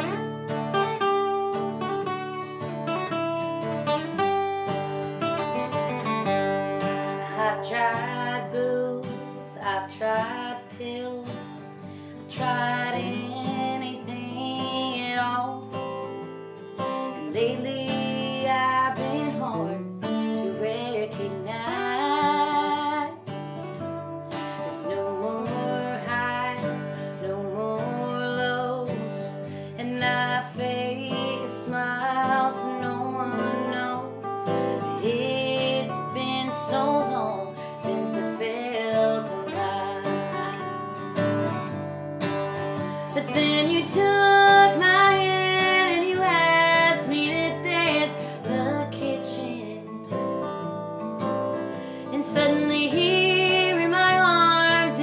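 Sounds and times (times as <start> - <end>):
woman singing: 0.0 - 1.5, 6.2 - 16.2, 16.8 - 23.4, 24.0 - 41.0, 42.6 - 55.0
acoustic guitars: 0.0 - 55.0.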